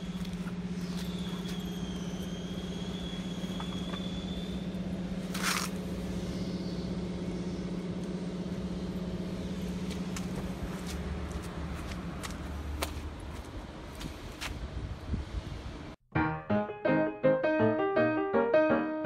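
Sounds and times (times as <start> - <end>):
small engine running steadily: 0.0 - 13.0.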